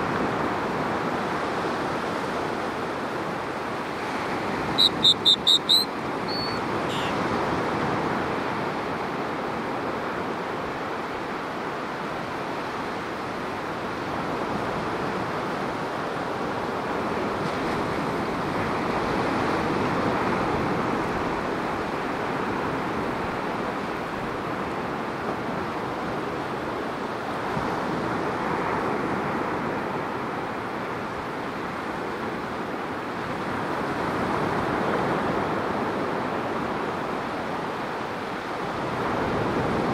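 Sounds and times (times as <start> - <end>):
ocean waves breaking on beach: 0.0 - 39.9.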